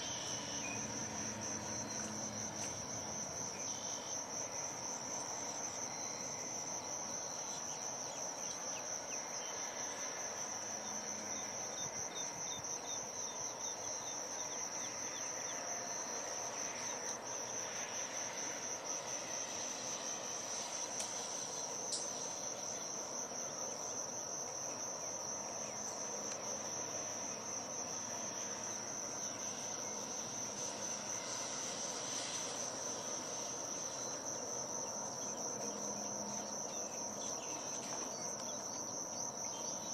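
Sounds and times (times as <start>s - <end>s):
insects trilling: 0.0s - 39.9s.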